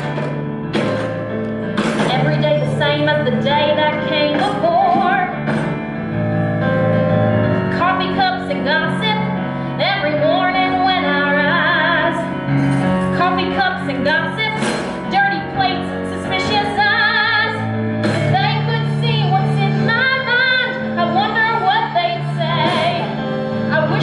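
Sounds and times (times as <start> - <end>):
instrumental accompaniment: 0.0 - 24.0
woman singing with vibrato: 2.1 - 5.5, 7.7 - 12.5, 13.1 - 24.0.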